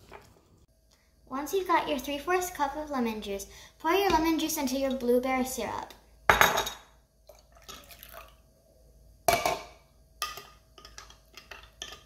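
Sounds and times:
liquid pouring: 7.3s - 8.4s.

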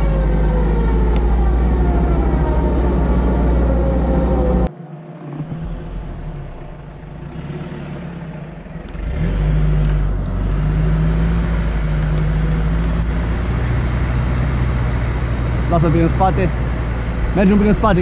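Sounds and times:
truck engine revving: 0.0s - 18.0s
wheels churning wet mud: 9.0s - 18.0s.

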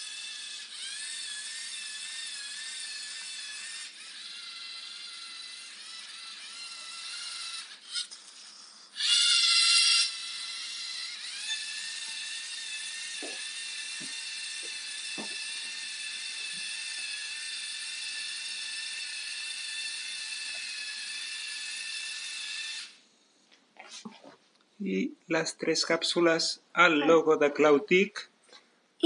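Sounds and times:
robot servo motors whining: 0.0s - 23.0s.

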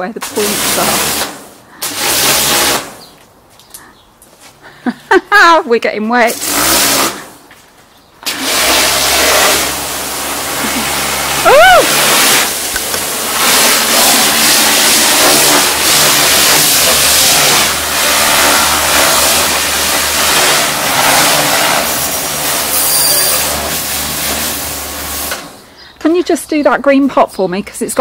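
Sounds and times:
water jet spraying fabric: 0.0s - 3.1s, 6.2s - 7.4s, 8.2s - 25.6s
pressure washer motor hum: 0.2s - 3.0s, 6.3s - 7.4s, 8.2s - 25.7s.

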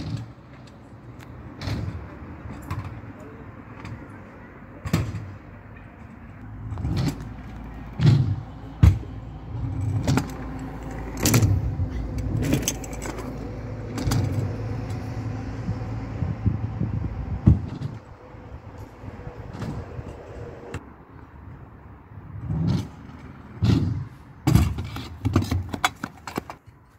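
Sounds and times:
scooter clacks and rattles: 6.6s - 15.0s, 23.6s - 26.9s
scooter wheels rumbling on ramps: 6.6s - 18.2s, 18.8s - 20.8s, 22.4s - 26.6s.

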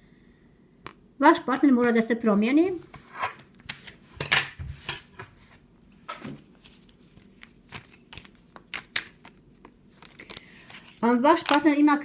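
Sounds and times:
cards being shuffled: 6.2s - 11.7s.

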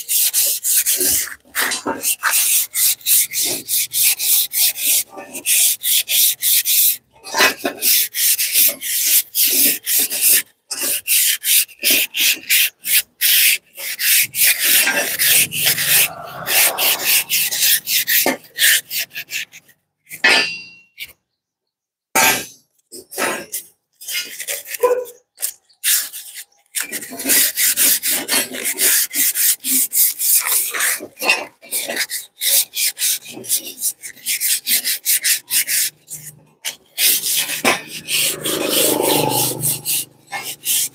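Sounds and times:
abrasive scraping metal spring: 14.0s - 18.8s, 20.1s - 21.2s, 35.4s - 40.9s.

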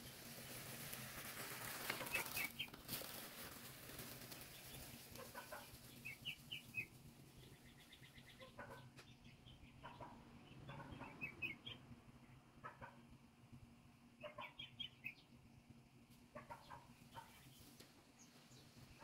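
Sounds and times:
spreader rattling across grass: 0.0s - 7.0s
birds chirping: 1.9s - 2.8s, 4.3s - 13.1s, 14.1s - 19.0s.

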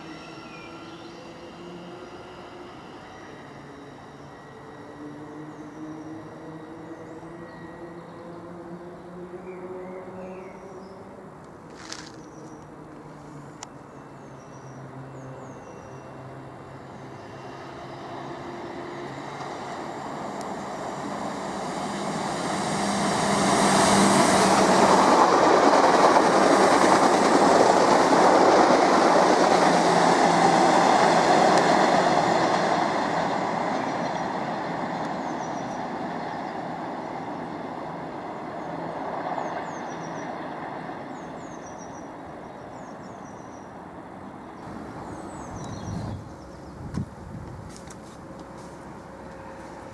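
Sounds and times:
train wheels rumbling on rails: 16.4s - 43.4s, 44.6s - 49.9s.

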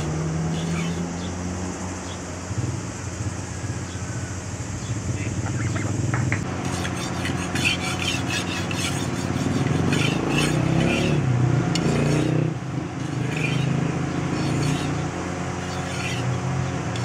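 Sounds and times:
blade scraping on sharpening stone: 6.6s - 11.2s, 13.0s - 17.0s.

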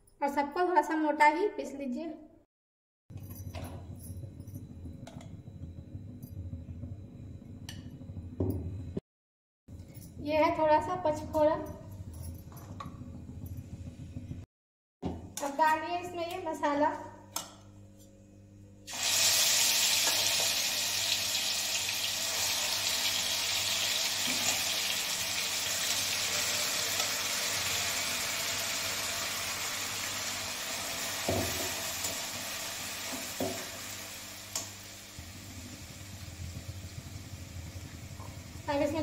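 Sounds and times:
paste sizzling in hot oil: 18.9s - 38.7s.

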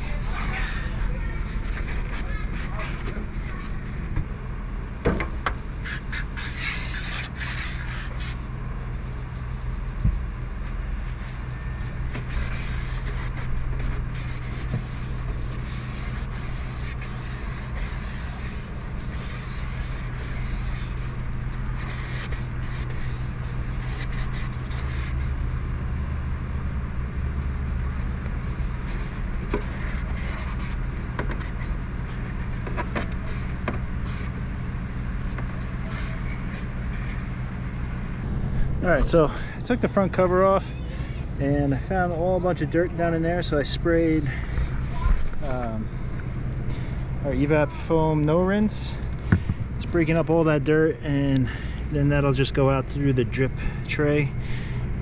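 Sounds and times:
low mechanical hum: 0.0s - 55.0s
rag scrubbing sheet metal: 11.9s - 25.3s.

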